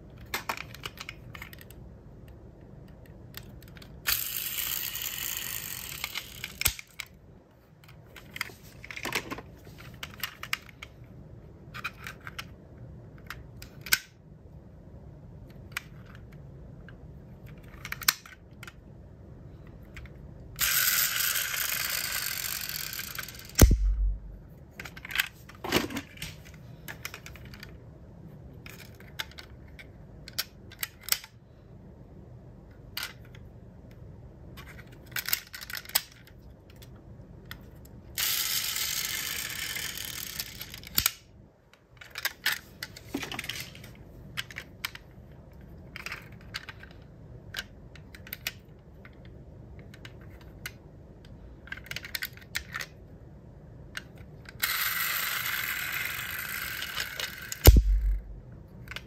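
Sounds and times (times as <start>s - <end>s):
model cars clicking and clacking: 20.0s - 23.6s, 54.0s - 57.7s
dull thump: 57.7s - 58.4s.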